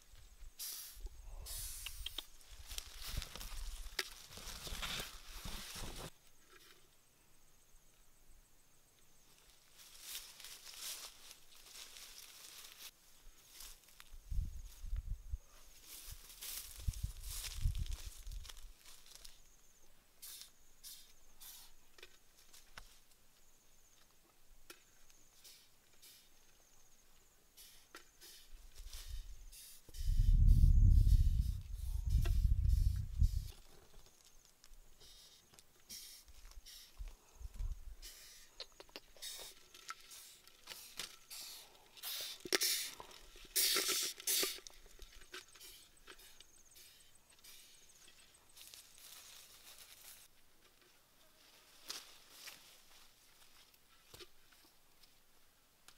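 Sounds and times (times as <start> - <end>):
leaves and twigs rustling: 1.2 - 6.9, 9.1 - 20.6, 28.5 - 29.5, 30.4 - 55.3
sharp clicks: 1.8 - 2.3
twigs snapping: 1.9 - 5.2.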